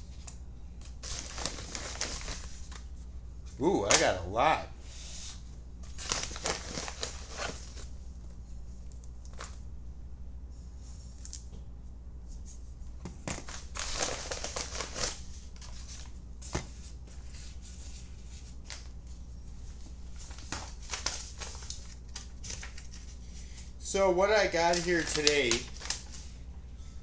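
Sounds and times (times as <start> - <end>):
steady low hum: 0.0 - 27.0
packaging crinkling and rustling: 0.2 - 2.9, 5.8 - 7.9, 13.2 - 19.0, 20.0 - 23.2, 24.5 - 26.3.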